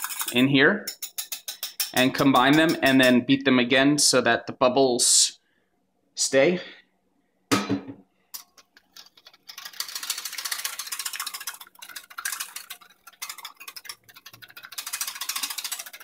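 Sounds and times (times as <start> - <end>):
whisk clicking against glass bowl: 0.0 - 3.2, 8.4 - 16.0.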